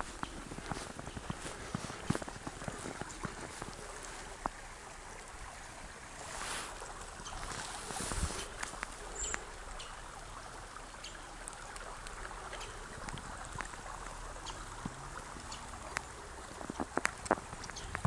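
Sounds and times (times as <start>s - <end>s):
footsteps crunching in snow: 0.0s - 4.3s, 6.2s - 8.8s
stream babbling over stones: 0.0s - 18.0s.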